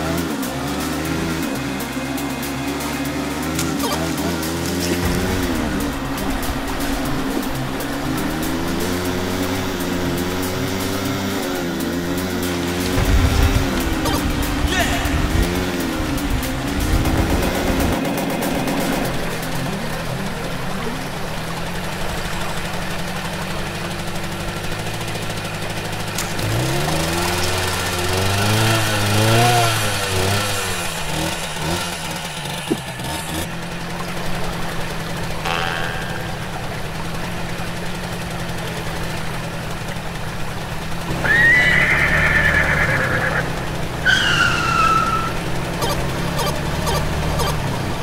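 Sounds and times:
dirt bike engine revving: 0.0s - 48.0s
horse whinnying: 41.2s - 45.3s.

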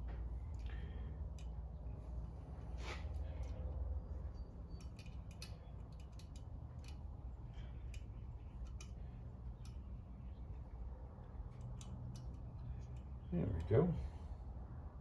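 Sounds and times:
low steady hum: 0.0s - 15.0s
light metallic clicks and taps: 4.7s - 10.0s, 11.2s - 13.8s.

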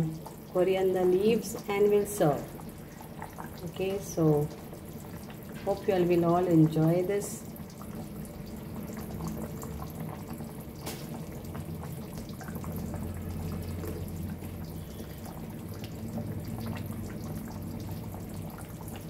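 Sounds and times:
curry bubbling and popping: 0.0s - 19.0s.

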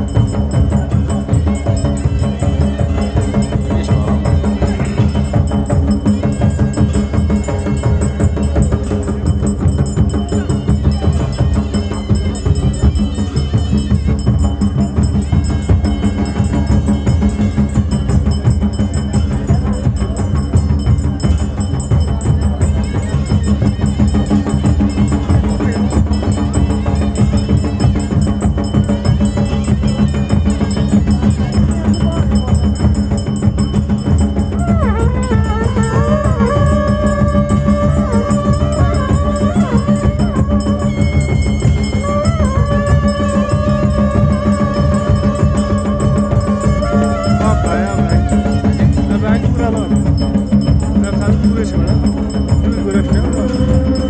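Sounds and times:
drums beating driving rhythm: 0.0s - 54.0s
brass horns holding notes: 34.6s - 49.6s.

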